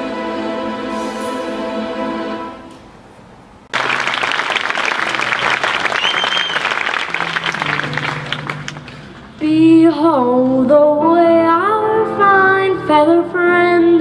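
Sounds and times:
music: 0.0 - 2.8, 5.0 - 14.0
audience applause: 3.7 - 9.2
whistle from crowd: 5.8 - 6.9.

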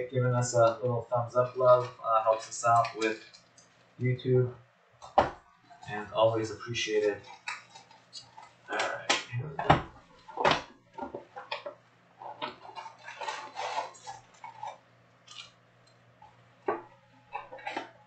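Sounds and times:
foil card packs crinkling: 12.6 - 15.6.

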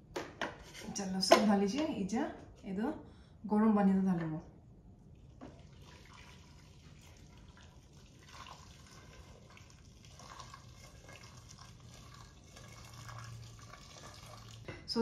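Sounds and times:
water pouring into pot: 5.2 - 14.7.

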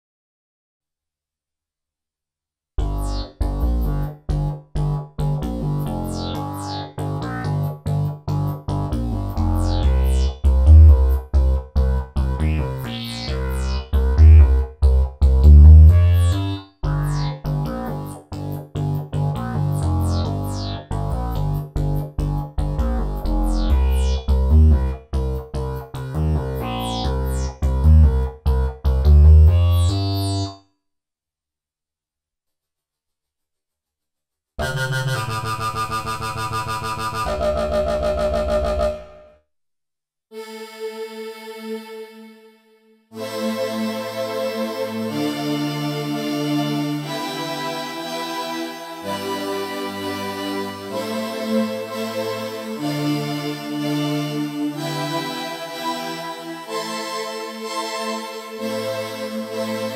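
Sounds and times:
high falling synth sweeps: 2.8 - 30.5
synthesizer bass riff: 2.8 - 30.6, 34.6 - 39.2.

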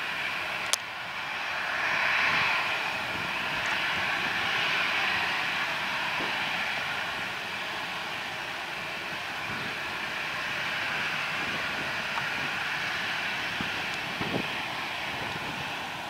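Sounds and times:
jet engines whining at taxi power: 0.0 - 16.0.

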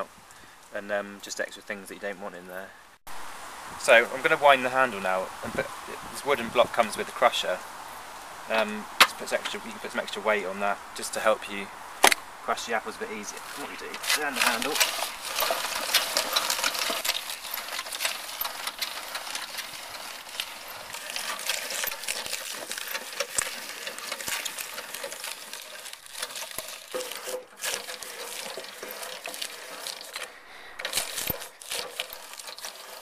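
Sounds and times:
fruit crusher crunching apples: 8.5 - 10.2, 12.0 - 33.0.

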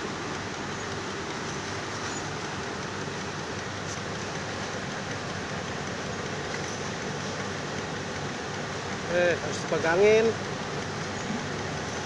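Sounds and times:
yarn winding machine running: 0.0 - 12.0.

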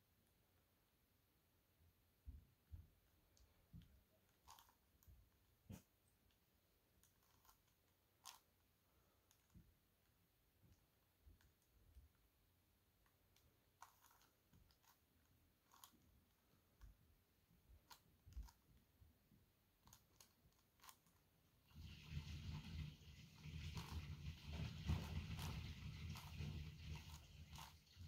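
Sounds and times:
plastic puzzle clicks and knocks: 3.3 - 5.2, 7.0 - 8.6, 13.0 - 17.0, 17.7 - 18.8, 19.8 - 21.3.

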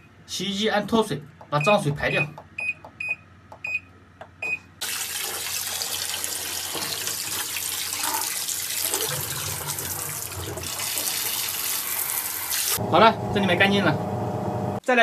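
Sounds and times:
washing machine beeps: 1.6 - 4.7
hose spraying water into tub: 4.8 - 12.8.

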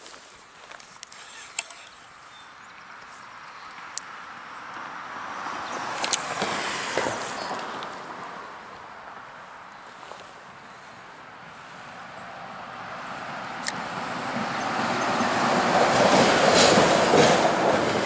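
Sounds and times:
vehicle tyre and road noise: 0.0 - 18.0
sharp clicks: 0.8 - 2.0.

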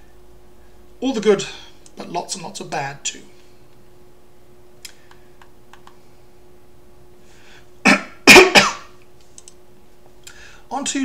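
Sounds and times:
man coughing: 7.8 - 9.0
faint clicks: 9.2 - 9.6.

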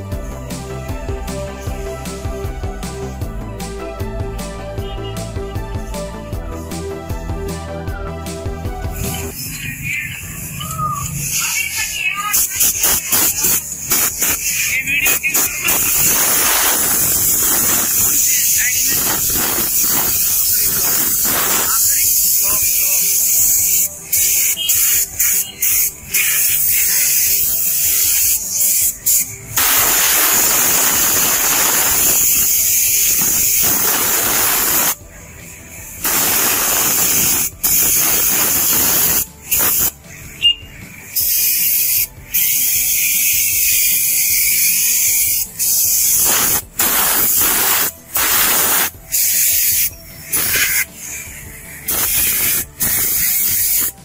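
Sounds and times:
spray gun hissing: 11.2 - 40.1, 40.8 - 54.0.

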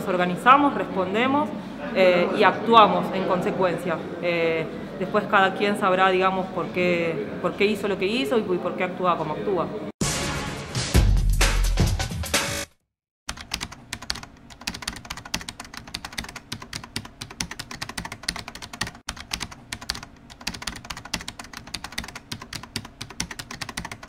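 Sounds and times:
rapid typing-like clicking: 13.3 - 24.0.

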